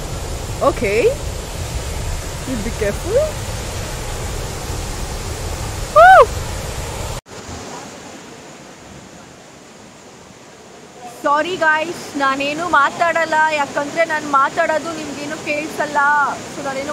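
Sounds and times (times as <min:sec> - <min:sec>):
waterfall rushing: 0:00.0 - 0:16.9
high rising and falling call: 0:05.9 - 0:06.3.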